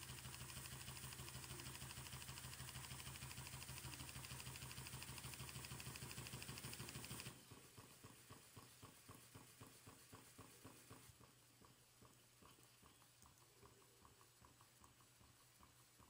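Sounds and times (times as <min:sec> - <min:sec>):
steam engine knocking beat: 0:00.0 - 0:16.0.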